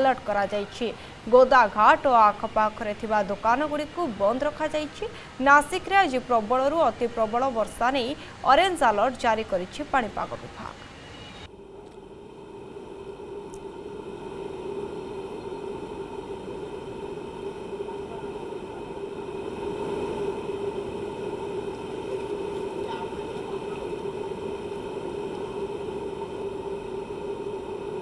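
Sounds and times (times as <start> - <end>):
floodwater rushing: 12.8 - 28.0.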